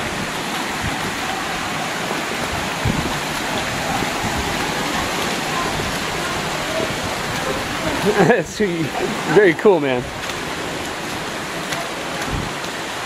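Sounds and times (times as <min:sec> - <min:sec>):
creek water rushing over ledges: 0:00.0 - 0:13.0.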